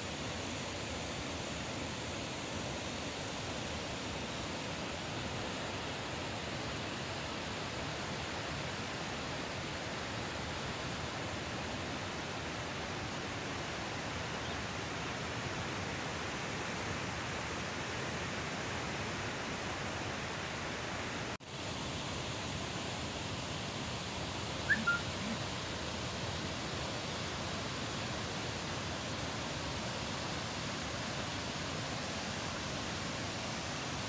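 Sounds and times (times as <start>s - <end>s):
floodwater rushing: 24.6s - 25.8s.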